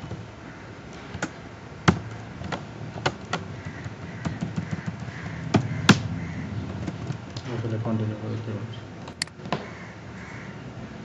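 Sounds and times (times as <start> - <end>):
keyboard and mouse clicks: 1.1 - 6.0, 9.1 - 9.4.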